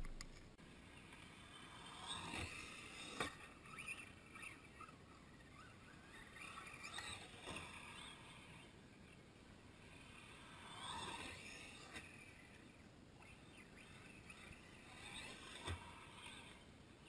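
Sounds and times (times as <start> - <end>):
electric toy truck motor whine: 9.9 - 16.7.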